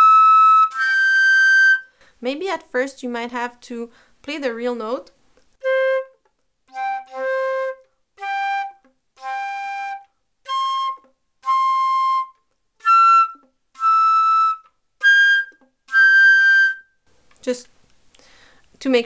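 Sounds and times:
flute playing short notes: 0.0s - 1.9s, 5.6s - 16.9s.

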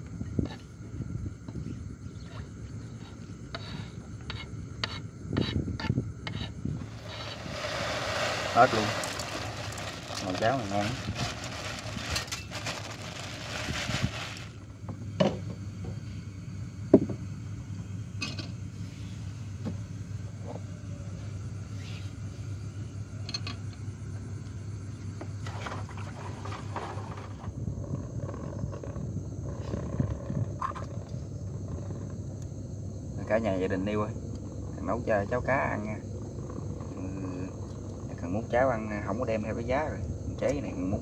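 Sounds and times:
rice pouring into water: 6.8s - 14.6s
plastic bag rustling: 6.8s - 14.7s.

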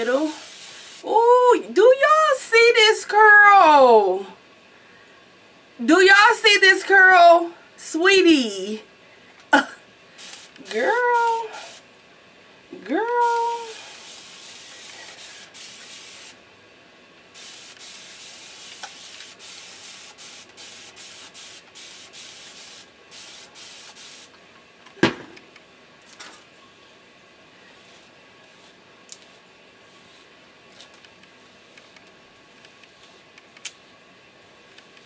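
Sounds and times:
spray bottle hissing: 0.3s - 1.0s, 10.2s - 10.6s, 13.3s - 16.4s, 17.4s - 24.3s.

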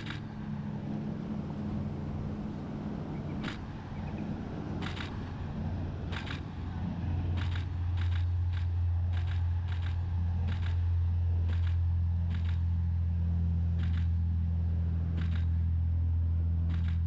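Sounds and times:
boat diesel engines rumbling: 0.0s - 17.0s
camera shutter clicking: 4.8s - 5.1s.

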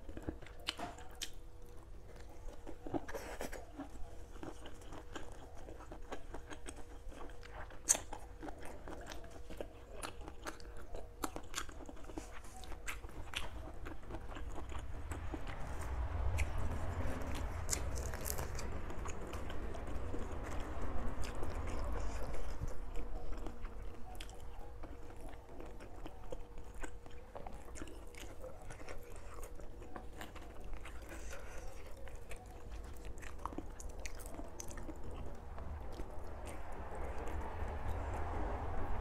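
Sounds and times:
chewing and crunching: 0.0s - 39.0s.

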